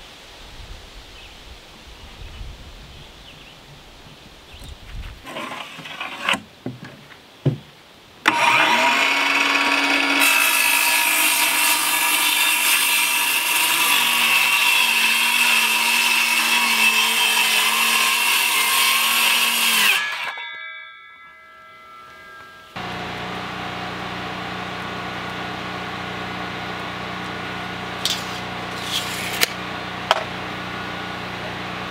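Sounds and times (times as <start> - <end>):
knocks and rustles of board: 4.9 - 7.7
circular saw cutting plywood: 5.2 - 6.5, 8.3 - 20.4, 22.7 - 31.9.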